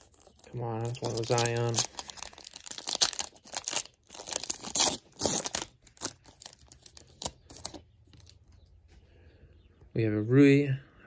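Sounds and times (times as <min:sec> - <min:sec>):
plastic wrapper tearing and crinkling: 0:00.0 - 0:08.4.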